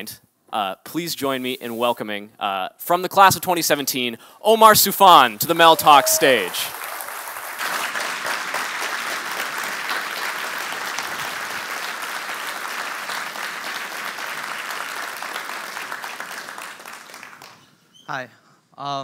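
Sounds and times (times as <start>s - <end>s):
audience applauding: 5.5s - 17.6s.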